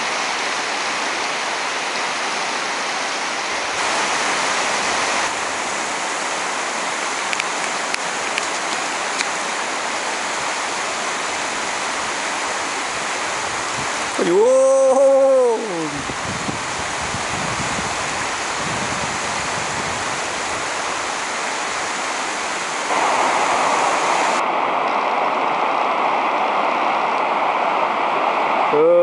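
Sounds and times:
flowing river water: 0.0 - 29.0
person yelling: 14.2 - 16.1, 28.7 - 29.0.

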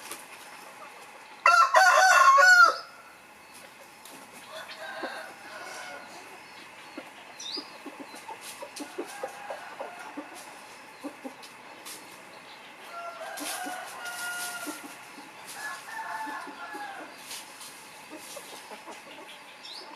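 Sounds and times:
roosters clucking: 0.0 - 19.9
rooster crowing: 1.4 - 3.1, 4.4 - 6.3, 8.8 - 10.5, 12.8 - 15.0, 15.6 - 17.2.

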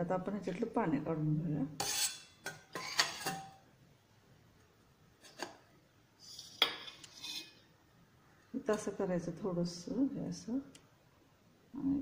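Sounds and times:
metal plate clinking on steel bowl: 1.8 - 3.6.

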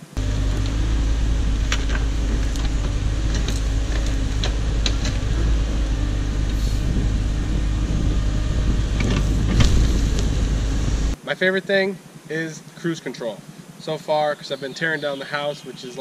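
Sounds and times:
excavator diesel engine running: 0.0 - 11.2.

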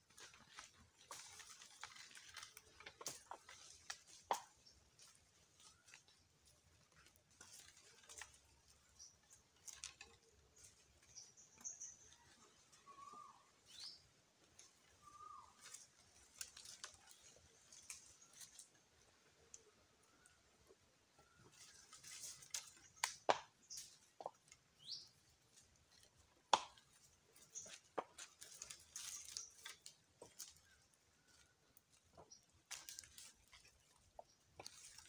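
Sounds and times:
bird chirps: 11.0 - 14.1, 15.0 - 15.7, 24.8 - 25.2.

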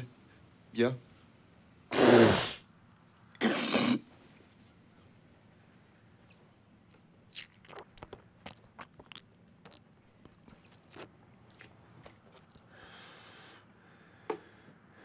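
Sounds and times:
wet mouth clicks and smacks: 6.9 - 12.7.

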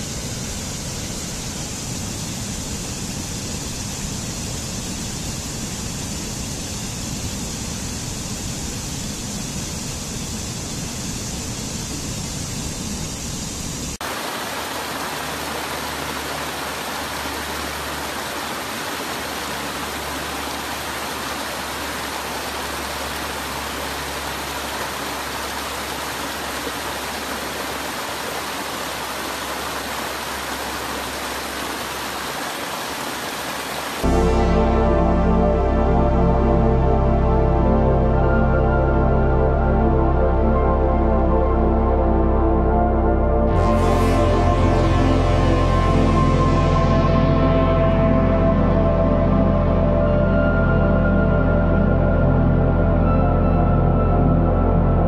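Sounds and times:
stream water rushing over rocks: 13.9 - 35.0.

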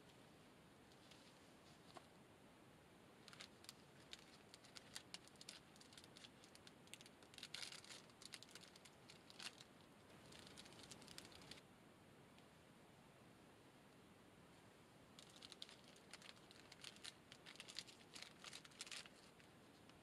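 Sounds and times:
plastic snack packet crinkling: 3.2 - 11.6, 15.2 - 19.9.

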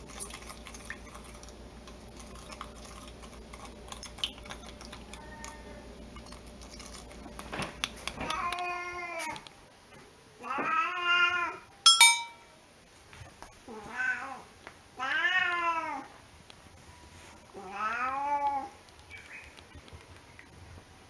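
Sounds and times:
cat meowing: 5.1 - 5.9, 8.2 - 9.4, 10.4 - 11.7, 13.7 - 16.1, 17.6 - 18.8
short sharp clink: 11.9 - 12.5.

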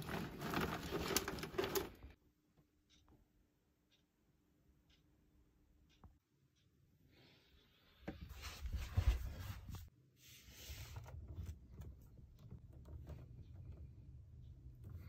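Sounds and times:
cables rustling and clicking: 0.0 - 2.2, 10.8 - 15.0.

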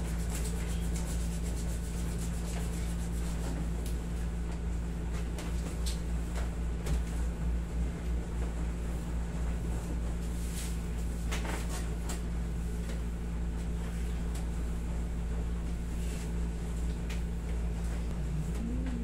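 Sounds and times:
air conditioner humming: 0.0 - 19.0
person humming: 18.1 - 19.0.

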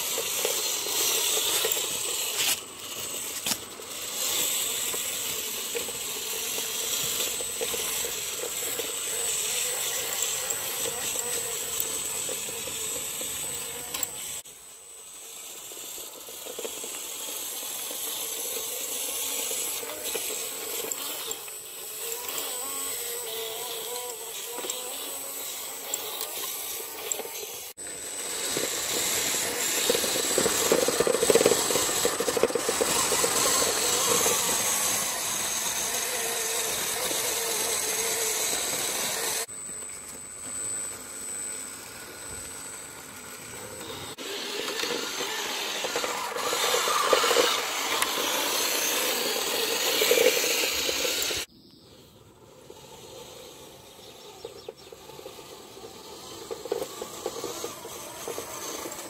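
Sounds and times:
toy truck motor whining: 0.0 - 59.0
plastic chassis rattling: 28.5 - 38.3.

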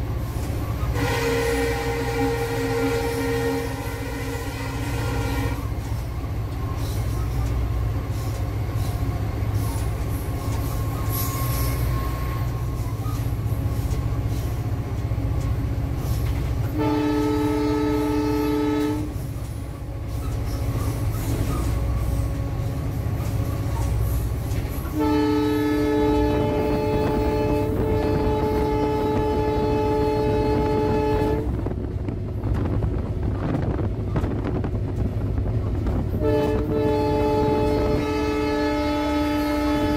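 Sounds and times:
locomotive rumble: 0.0 - 39.9
locomotive horn blasts: 0.8 - 5.8, 16.7 - 19.3, 24.8 - 31.7, 36.1 - 39.9.

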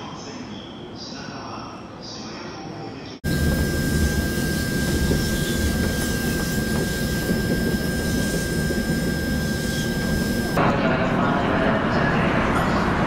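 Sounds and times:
high-pitched whine: 3.2 - 10.7.

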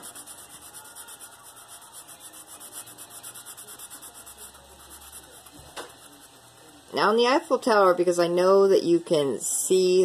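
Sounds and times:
marker scratching on paper: 0.0 - 6.8.

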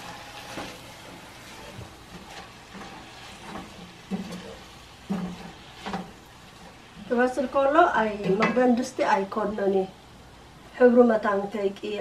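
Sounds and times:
wooden spoon scraping pot: 0.0 - 6.9
greens sizzling: 0.0 - 12.0.

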